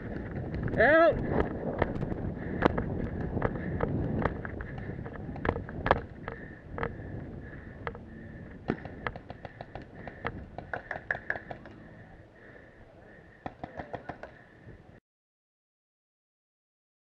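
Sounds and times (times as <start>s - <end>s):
paintball markers firing: 8.6s - 11.8s, 13.4s - 14.4s.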